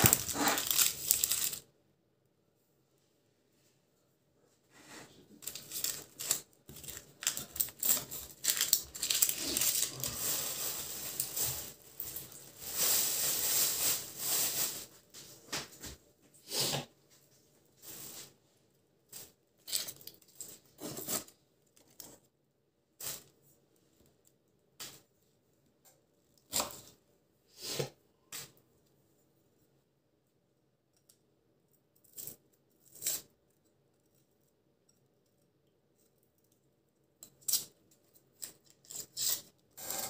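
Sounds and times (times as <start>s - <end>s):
plastic bag crinkling: 0.0s - 1.6s, 5.4s - 15.0s.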